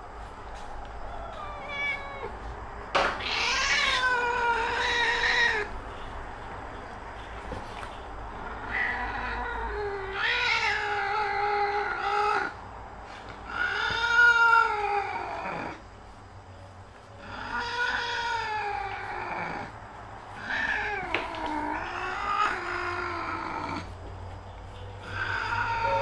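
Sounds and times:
cat meowing: 1.0 - 2.5, 3.2 - 5.7, 8.5 - 12.6, 13.4 - 15.8, 17.2 - 19.7, 20.4 - 23.9, 25.0 - 26.0.

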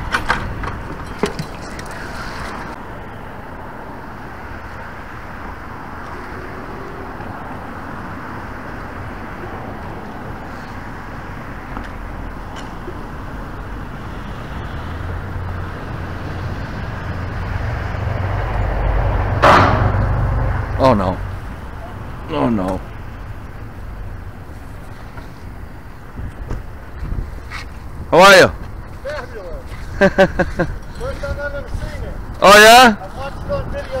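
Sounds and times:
road traffic noise: 0.0 - 34.0
low rumble: 16.8 - 22.3.

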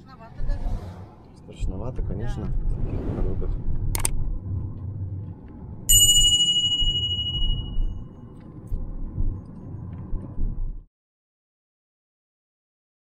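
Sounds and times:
car driving rumble inside cabin: 3.5 - 5.9, 6.8 - 10.9
bright bell-like chime: 5.9 - 8.0.

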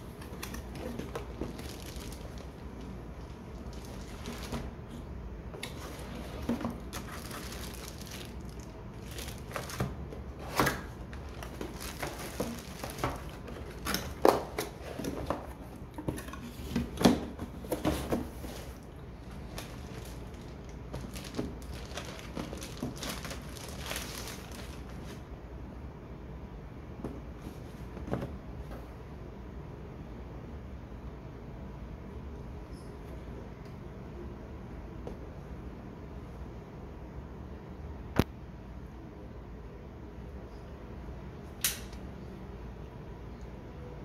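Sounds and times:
plastic wrap crinkling: 0.3 - 4.8, 5.6 - 15.4, 18.1 - 25.2.

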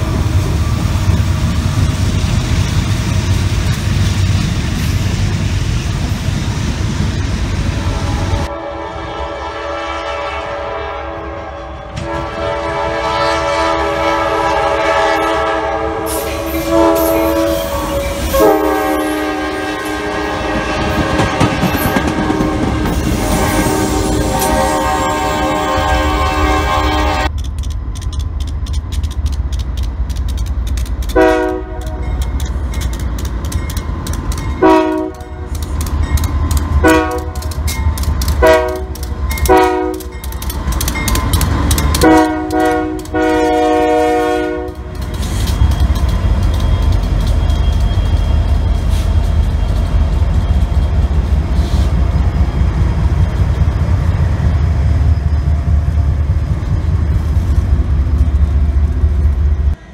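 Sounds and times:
train rumbling: 0.0 - 59.9
locomotive air horn blasts: 7.9 - 27.3, 31.1 - 32.1, 34.6 - 35.5, 36.8 - 37.6, 38.4 - 40.2, 41.9 - 44.9.

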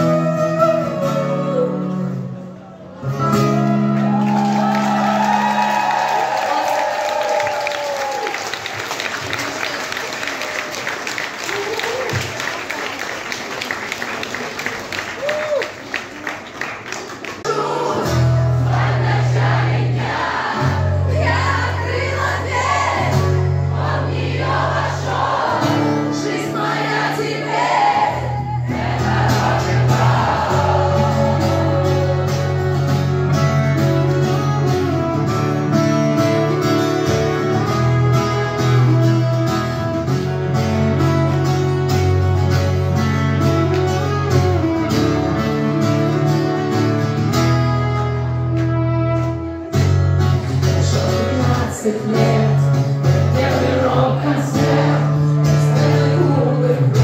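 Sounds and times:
guitar: 0.0 - 57.0
woman singing: 50.8 - 57.0.

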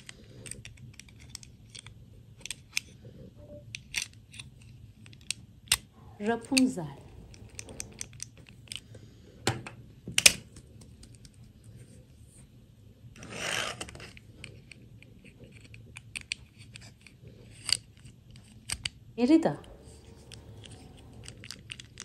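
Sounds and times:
rustling scrape: 19.6 - 22.0.

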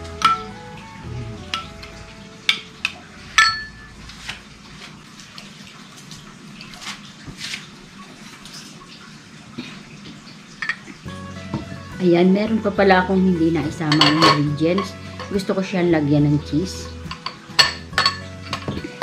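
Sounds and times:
kitchen utensils knocking and scraping: 2.5 - 3.9, 13.7 - 15.5, 16.9 - 19.0
spoon clinking ceramic bowl: 2.5 - 3.9, 13.9 - 15.4, 16.8 - 19.0.

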